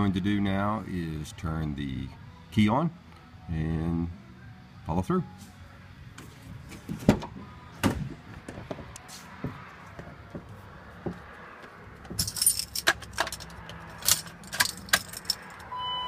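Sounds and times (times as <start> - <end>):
keys jangling: 12.2 - 15.7.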